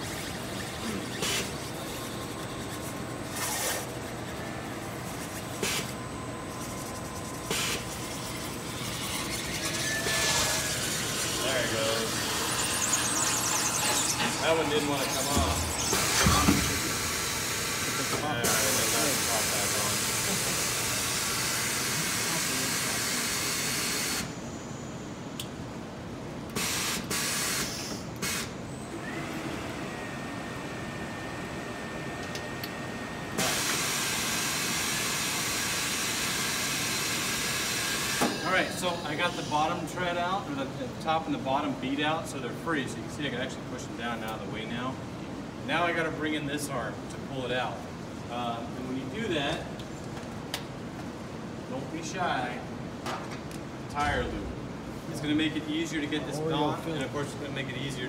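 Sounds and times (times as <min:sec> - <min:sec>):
tire changer machine hum: 0:00.0 - 0:39.8.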